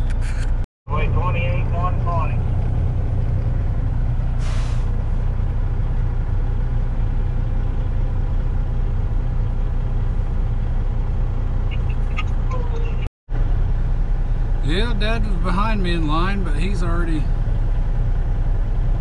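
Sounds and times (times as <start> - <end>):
diesel engine low rumble: 0.0 - 19.0
air brake hiss: 4.4 - 5.0.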